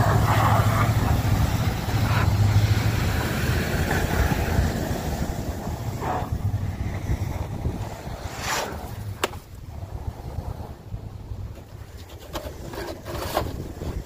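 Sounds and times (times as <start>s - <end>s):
car engine revving: 0.0s - 9.2s
wheels spinning in snow: 0.0s - 14.0s.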